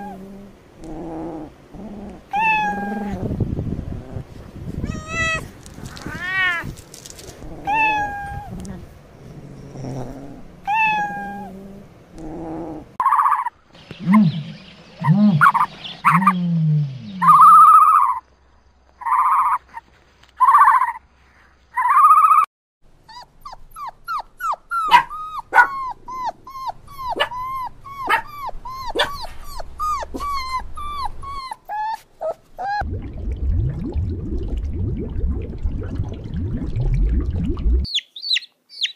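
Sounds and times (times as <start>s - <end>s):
kitten meowing: 4.8s - 6.7s, 7.7s - 8.5s
animal calls: 13.0s - 18.2s.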